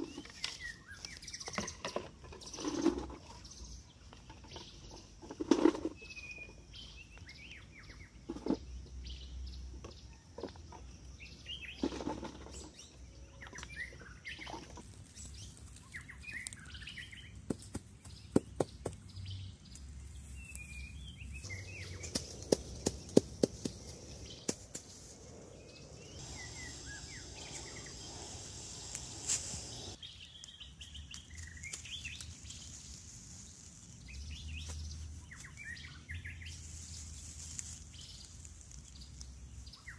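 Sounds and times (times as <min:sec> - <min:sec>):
birds chirping: 0:00.0 - 0:39.9
stones knocking: 0:21.5 - 0:25.0.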